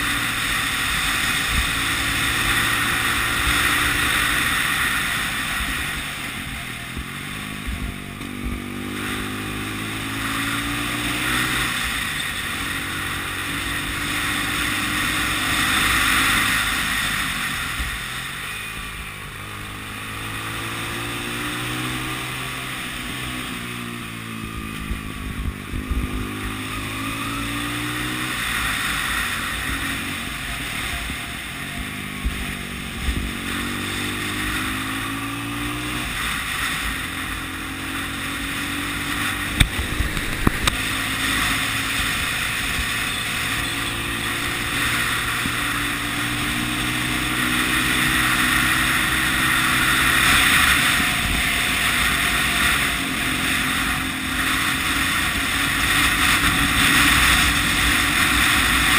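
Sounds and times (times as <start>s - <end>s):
motorcycle engine under way: 0.0s - 58.9s
wind rush over microphone: 38.6s - 43.2s.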